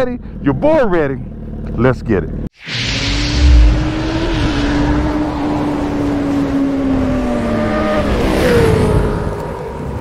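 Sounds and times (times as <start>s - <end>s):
motorcycle engine: 1.2s - 2.4s, 3.1s - 8.8s
loud whoosh: 2.6s - 7.5s.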